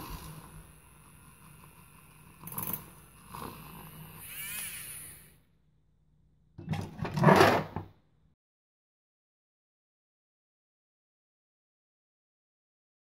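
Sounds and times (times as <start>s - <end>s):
milk frother whirring: 0.0s - 5.4s.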